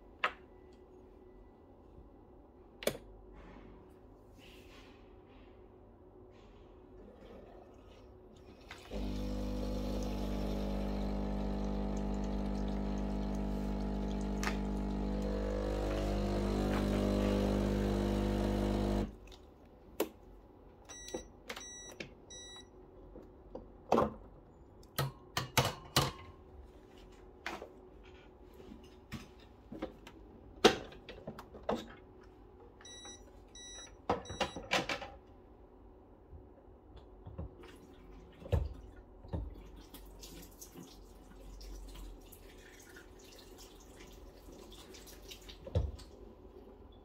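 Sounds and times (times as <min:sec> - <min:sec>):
espresso machine humming: 0:08.9 - 0:19.2.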